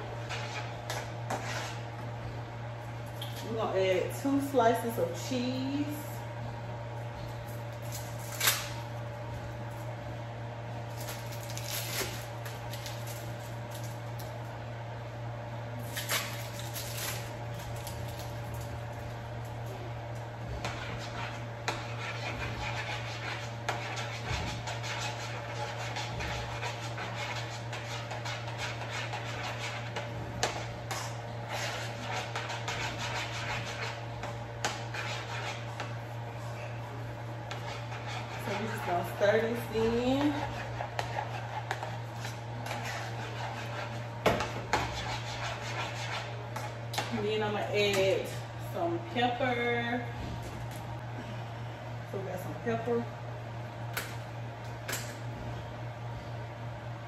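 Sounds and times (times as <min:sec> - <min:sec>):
kitchen hum: 0:00.0 - 0:57.0
plastic wrapper rustling: 0:10.9 - 0:14.2
spoon stirring mashed potatoes: 0:20.7 - 0:36.1.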